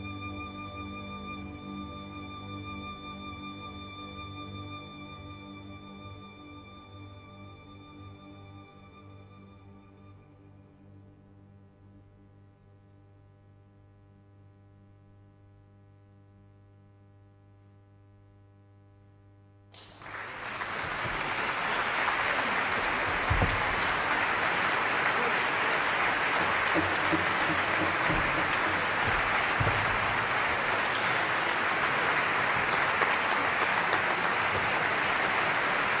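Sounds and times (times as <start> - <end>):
audience applause: 19.8 - 36.0.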